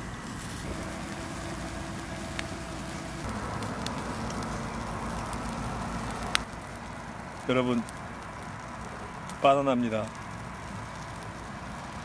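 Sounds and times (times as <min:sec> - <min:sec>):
low hum: 0:00.0 - 0:08.2
food sizzling on grill: 0:00.0 - 0:12.0.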